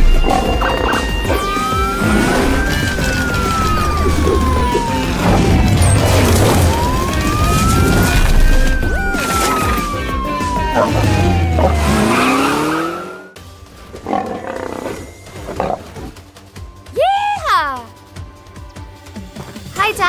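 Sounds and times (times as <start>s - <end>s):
cartoon siren wailing: 0.0s - 13.4s.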